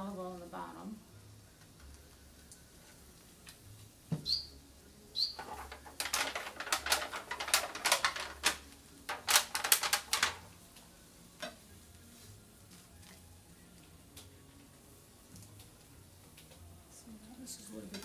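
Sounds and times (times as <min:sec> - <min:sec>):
bird chirps: 0:04.2 - 0:04.5, 0:05.2 - 0:05.4
packaging crackling: 0:05.4 - 0:10.5.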